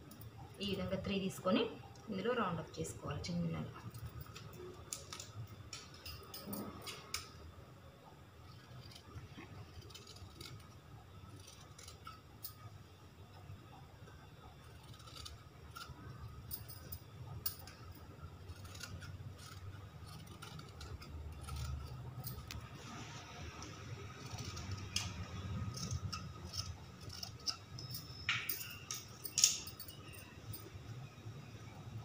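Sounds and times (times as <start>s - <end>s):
scissors snipping cloth: 18.5s - 22.6s.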